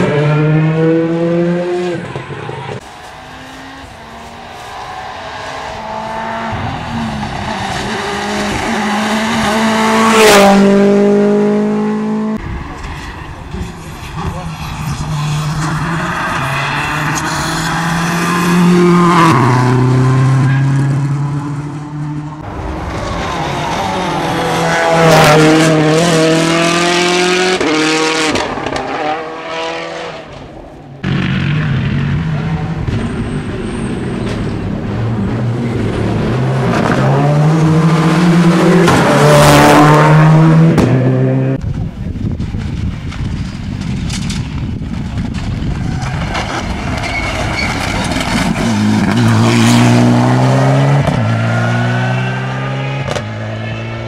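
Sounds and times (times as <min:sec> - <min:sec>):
rally car engines revving past: 0:00.0 - 0:41.6, 0:45.1 - 0:54.0.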